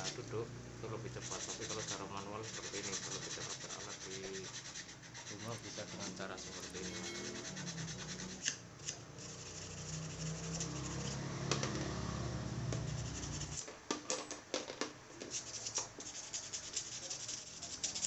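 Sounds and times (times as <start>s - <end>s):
sandpaper rasping on metal: 1.2s - 11.2s, 12.8s - 13.6s, 15.3s - 18.0s.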